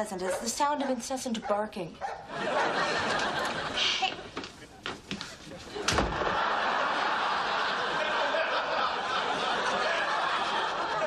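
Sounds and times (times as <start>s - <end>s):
studio audience laughing: 2.3s - 4.7s, 5.4s - 11.0s.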